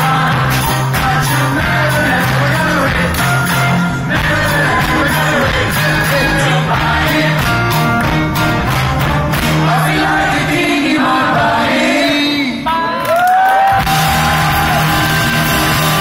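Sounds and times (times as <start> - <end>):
man singing into a microphone: 0.0 - 7.2
live band playing: 0.0 - 10.6, 13.7 - 16.0
steady bass line: 0.0 - 10.8, 13.8 - 16.0.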